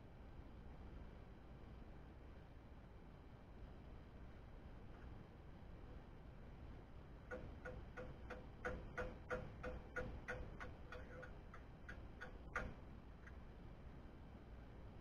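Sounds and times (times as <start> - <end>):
light metallic taps: 7.3 - 13.4.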